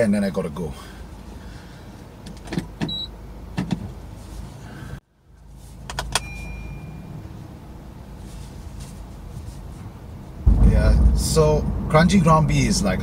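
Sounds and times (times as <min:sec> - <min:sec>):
car engine hum inside cabin: 0:01.1 - 0:13.0
short beep: 0:06.2 - 0:07.2.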